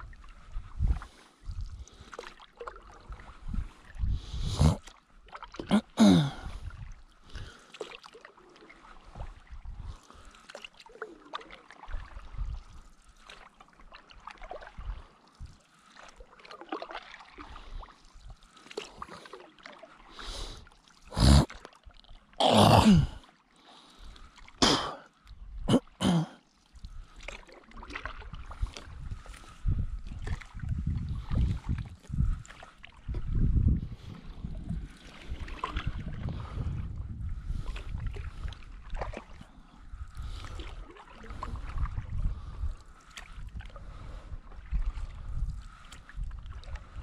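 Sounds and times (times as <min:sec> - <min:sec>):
paddle splashing in water: 0:01.9 - 0:04.0, 0:04.8 - 0:22.4, 0:26.4 - 0:33.3, 0:34.0 - 0:36.8, 0:37.5 - 0:47.0
water gurgling: 0:05.6 - 0:06.6, 0:21.0 - 0:21.7, 0:22.4 - 0:23.2, 0:24.6 - 0:25.0.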